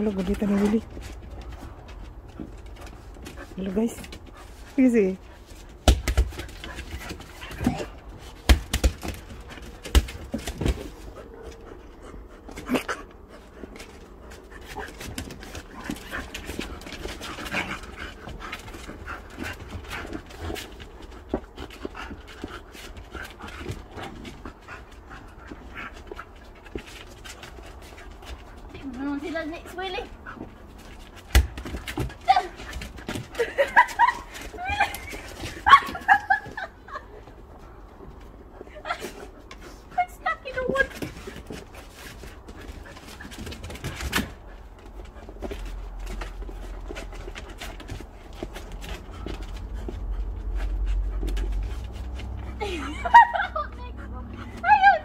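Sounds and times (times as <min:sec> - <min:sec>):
dog panting: 0:00.0 - 0:54.8.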